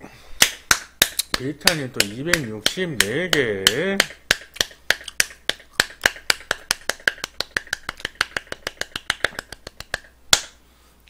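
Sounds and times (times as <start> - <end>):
rapid hand claps: 0.4 - 10.6.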